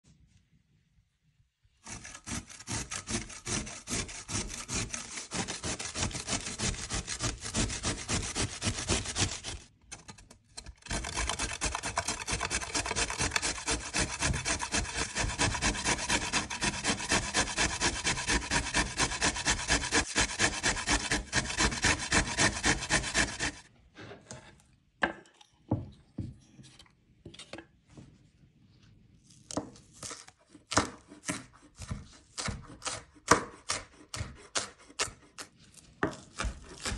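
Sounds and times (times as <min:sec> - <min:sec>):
vegetables rasping on a grater: 0:01.8 - 0:09.7, 0:10.8 - 0:23.6, 0:30.0 - 0:36.9
knife cutting on a cutting board: 0:29.3 - 0:36.9.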